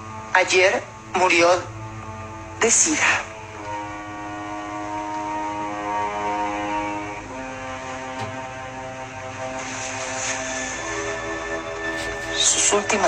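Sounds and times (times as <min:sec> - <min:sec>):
soft sustained music chords: 0:00.0 - 0:13.0.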